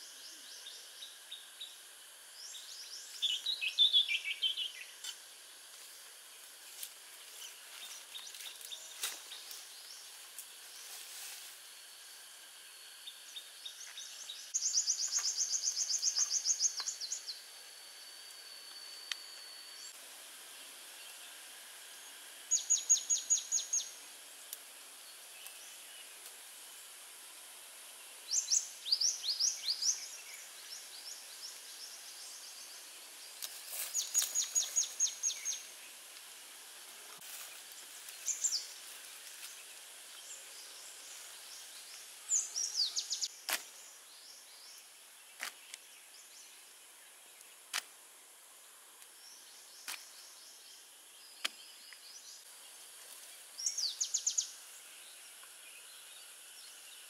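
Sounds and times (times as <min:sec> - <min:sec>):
thin high whine: 0:00.0 - 0:44.0
steady background hiss: 0:00.0 - 0:57.0
bird singing high trill: 0:42.3 - 0:43.3.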